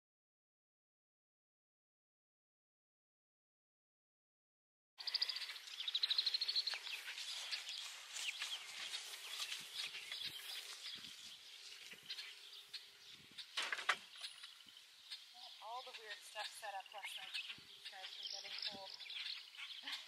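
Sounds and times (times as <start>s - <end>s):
birds chirping: 5.0s - 20.0s.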